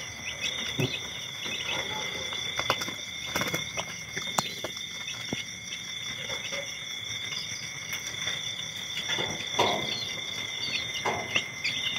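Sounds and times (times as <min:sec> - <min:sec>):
chicks peeping: 0:00.0 - 0:11.9
chicks shuffling in bedding: 0:00.1 - 0:11.4.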